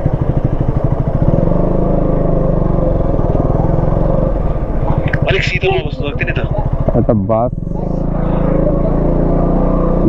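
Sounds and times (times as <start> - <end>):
motorcycle engine at low revs: 0.0 - 10.0.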